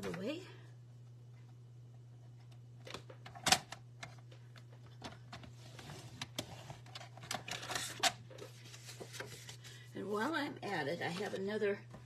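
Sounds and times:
paper rustling: 5.6 - 9.8.

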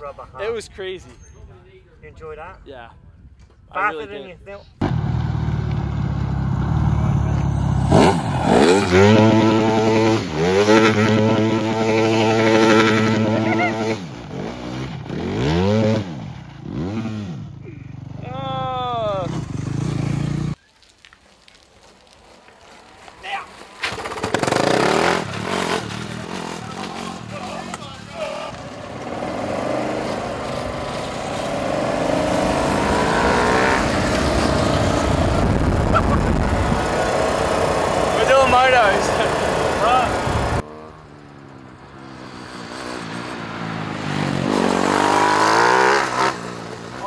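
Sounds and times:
go-kart engine revving: 4.8 - 17.5, 23.8 - 47.0.

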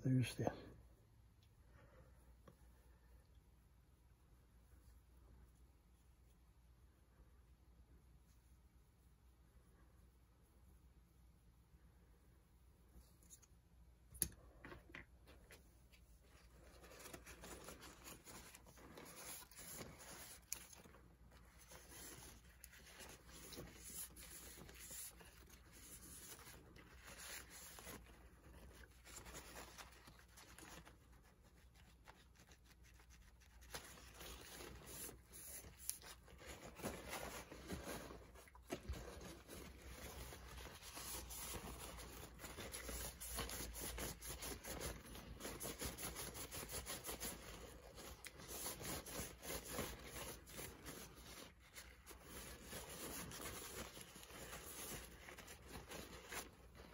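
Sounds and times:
hands rubbing and scraping parts: 13.0 - 56.9.

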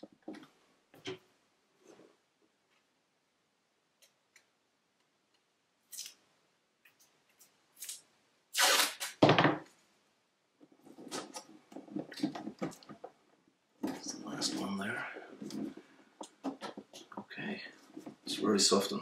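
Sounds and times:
masking tape ripping off roll: 5.9 - 6.2, 7.8 - 9.2.

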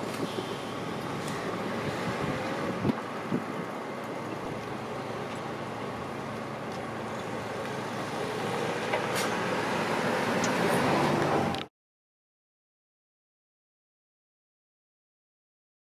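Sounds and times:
cars driving over level crossing: 0.0 - 11.7.

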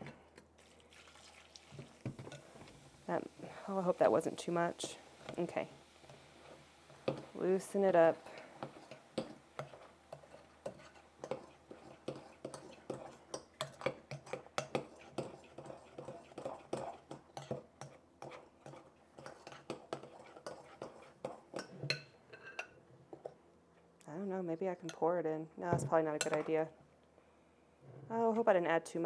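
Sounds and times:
metal whisk scraping glass bowl: 9.6 - 22.7.

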